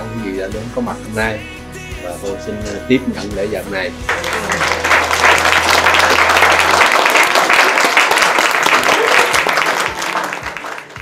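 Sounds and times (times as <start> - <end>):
dense clapping: 4.1 - 11.0.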